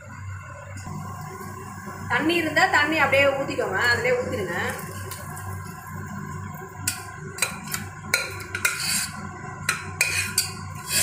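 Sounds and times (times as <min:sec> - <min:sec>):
low steady hum: 0:00.0 - 0:11.0
spatula scraping metal pot: 0:06.8 - 0:11.0.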